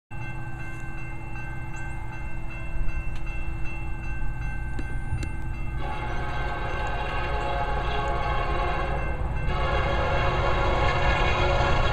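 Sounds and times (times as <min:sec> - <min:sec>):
crossing warning bell ringing: 0:00.1 - 0:11.9
locomotive air horn: 0:05.8 - 0:11.9.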